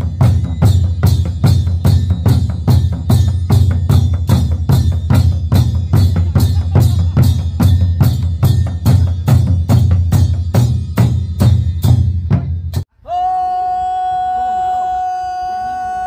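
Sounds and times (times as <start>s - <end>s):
wooden barrel drums beaten: 0.0s - 12.8s.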